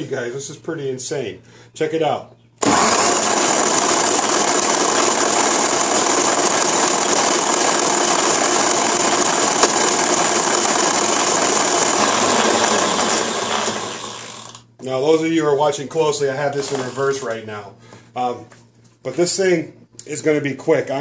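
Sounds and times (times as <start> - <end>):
cordless drill whirring: 2.6 - 14.7, 16.6 - 17.2.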